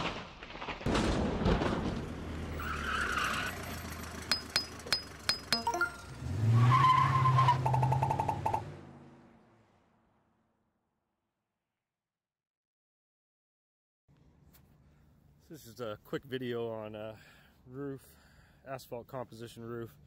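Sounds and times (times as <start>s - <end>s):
low vehicle hum: 1.4s - 10.6s
vehicle arriving with a squeal: 2.5s - 4.9s, 5.5s - 8.6s
sharp metallic clinks: 4.3s - 6.1s.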